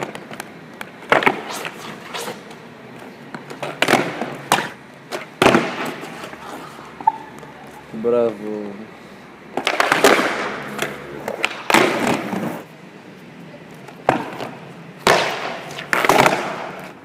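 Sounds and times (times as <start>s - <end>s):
skateboard wheels rolling rattle: 3.5s - 6.7s, 9.6s - 12.7s
skateboard clacking on stone: 9.6s - 12.5s, 15.1s - 17.0s.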